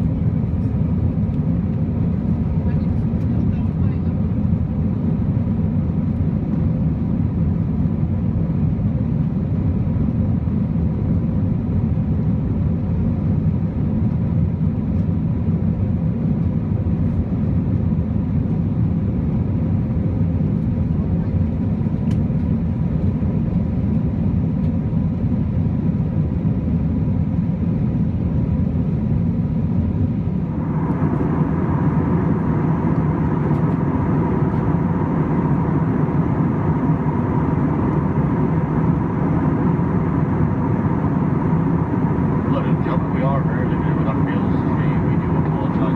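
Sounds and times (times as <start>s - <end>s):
jet engine and airflow rumble: 0.0s - 45.9s
faint steady whine: 26.7s - 45.9s.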